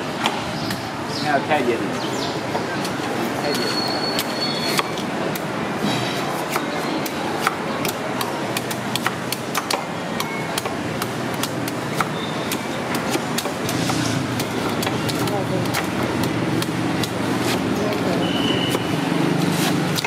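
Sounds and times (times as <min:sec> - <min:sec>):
traffic noise: 0:00.0 - 0:20.0
knives chopping coconut husks: 0:02.6 - 0:20.0.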